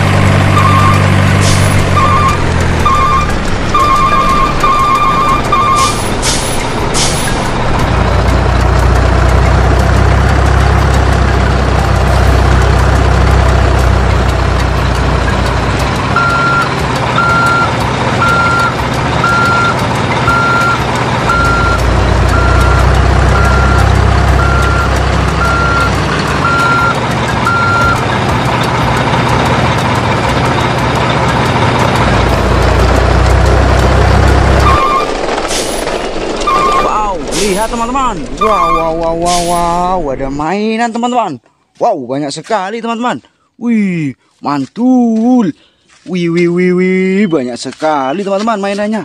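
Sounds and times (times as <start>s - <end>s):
diesel engine rumble: 0.0s - 41.7s
truck reversing alarm beeping: 0.4s - 6.6s, 16.1s - 28.2s, 32.6s - 35.2s, 36.4s - 37.1s.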